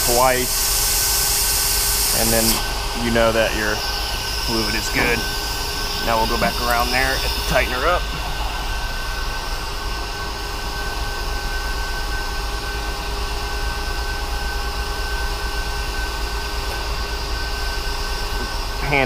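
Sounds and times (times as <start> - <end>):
mechanical hum: 0.0 - 19.0
constant high tones: 1.7 - 12.4.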